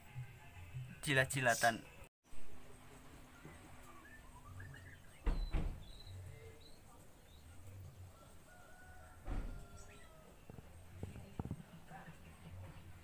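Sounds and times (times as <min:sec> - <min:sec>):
faint bird chirps: 0:03.2 - 0:09.0.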